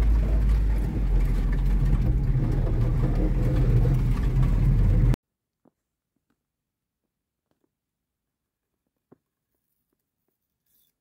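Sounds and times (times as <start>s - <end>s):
car engine droning from inside: 0.0s - 5.2s.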